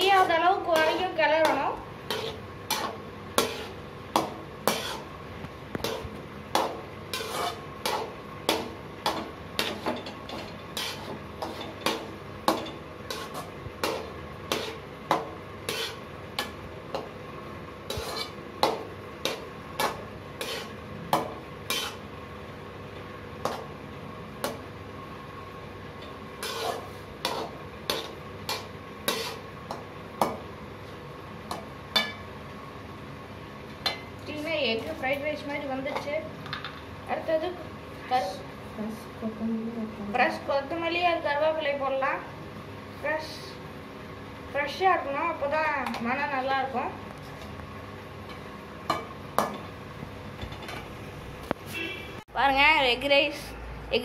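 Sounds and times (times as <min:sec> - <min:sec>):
metal spatula scraping a pot: 0:00.0 - 0:05.1, 0:05.8 - 0:14.9, 0:15.6 - 0:16.6, 0:17.8 - 0:18.4, 0:19.2 - 0:20.8, 0:21.6 - 0:22.1, 0:26.4 - 0:29.5.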